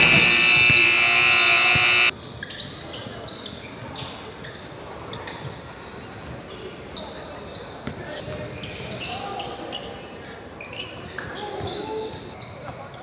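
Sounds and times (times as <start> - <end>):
scoreboard buzzer: 0.0 - 2.1.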